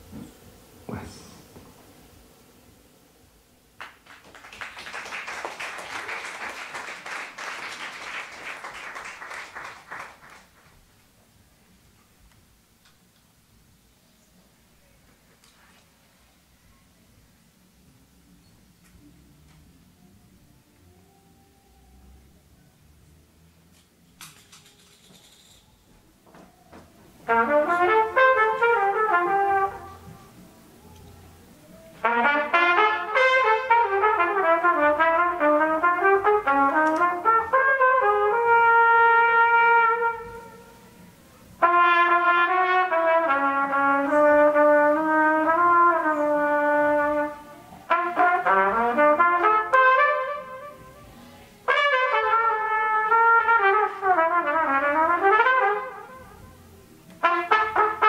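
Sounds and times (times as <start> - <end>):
solo trumpet playing: 27.2 - 30.7, 31.7 - 58.0.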